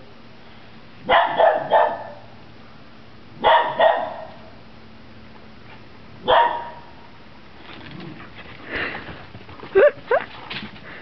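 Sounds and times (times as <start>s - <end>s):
dog barking: 1.0s - 2.3s, 3.4s - 4.4s, 6.2s - 6.9s.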